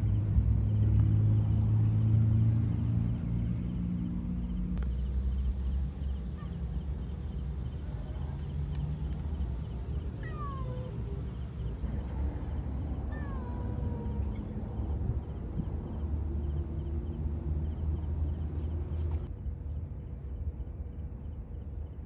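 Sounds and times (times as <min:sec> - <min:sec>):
steady low rumble: 0:00.0 - 0:22.0
cat meowing: 0:10.2 - 0:11.3, 0:13.0 - 0:14.6.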